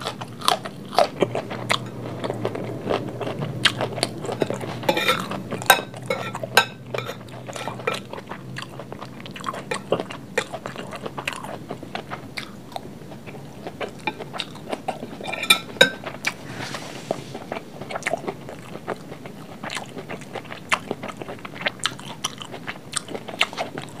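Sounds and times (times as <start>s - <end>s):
person chewing food: 0.0s - 24.0s
metal spoon clinking on glass plate: 4.9s - 8.0s.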